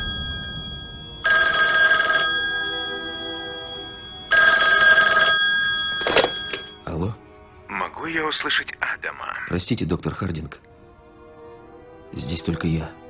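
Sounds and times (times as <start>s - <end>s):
rotary telephone ringing: 0.0s - 6.8s.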